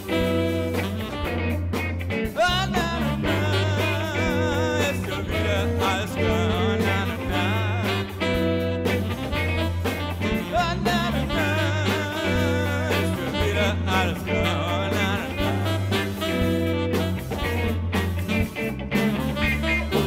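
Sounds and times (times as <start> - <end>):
stepping bass line: 0.0 - 20.0
song with singing voice: 2.1 - 17.3.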